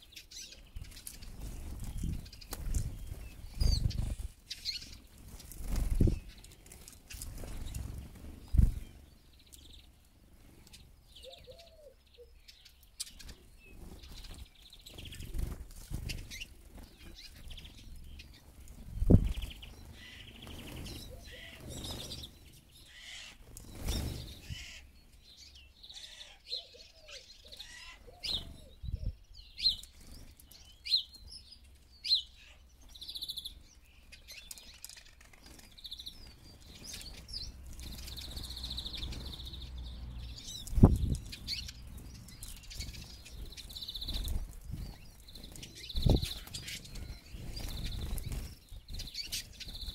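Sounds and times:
high chirping bird calls: 0:10.6 - 0:49.9.

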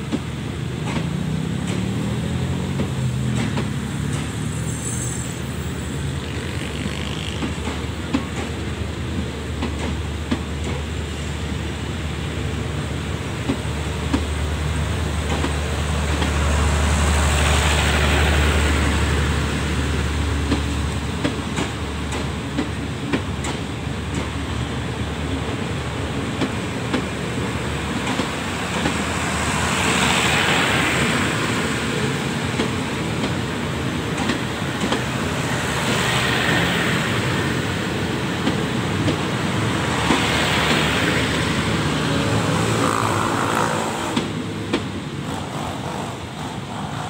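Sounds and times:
train rumbling past: 0:00.0 - 0:47.0
wheels clicking over rail joints: 0:06.2 - 0:08.7, 0:27.9 - 0:29.2, 0:29.8 - 0:37.3, 0:38.4 - 0:47.0.

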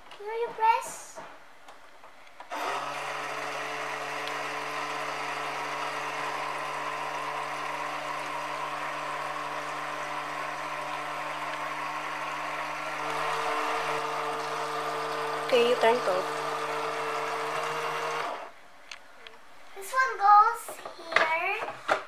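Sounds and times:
toy water pump motor hum: 0:02.5 - 0:18.6.

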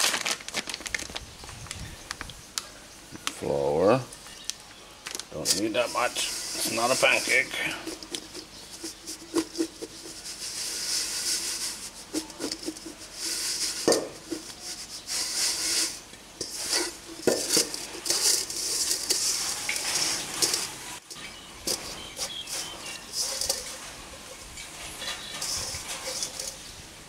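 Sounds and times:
dry swishes in metal bowl: 0:05.5 - 0:26.7.

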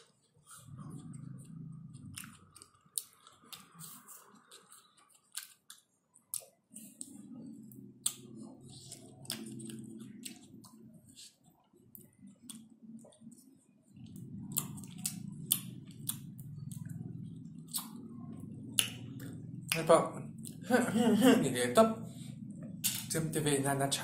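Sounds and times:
mouth eating sounds: 0:00.5 - 0:13.4, 0:14.0 - 0:21.8.

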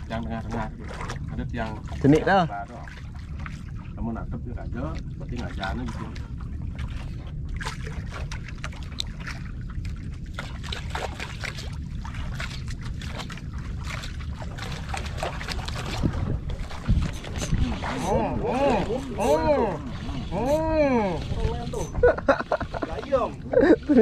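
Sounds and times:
steady low rumble: 0:00.0 - 0:24.0
water lapping against boat: 0:00.0 - 0:24.0
small clicks and splashes: 0:04.8 - 0:18.1.

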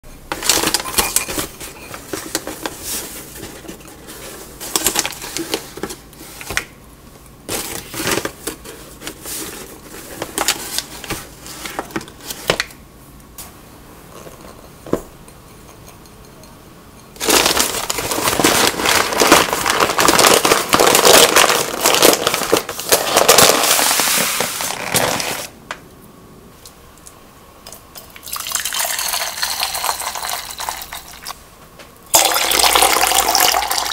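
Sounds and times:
paper bag crinkling: 0:00.3 - 0:06.7, 0:17.2 - 0:25.6.

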